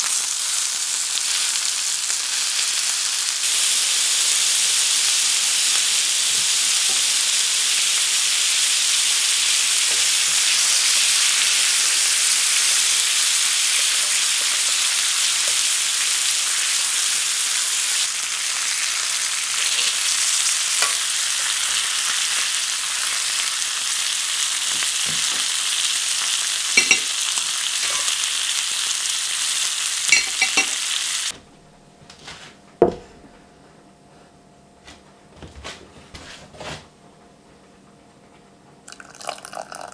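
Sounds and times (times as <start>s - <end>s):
meat sizzling in a frying pan: 0.0s - 31.3s
knock: 32.8s - 33.1s.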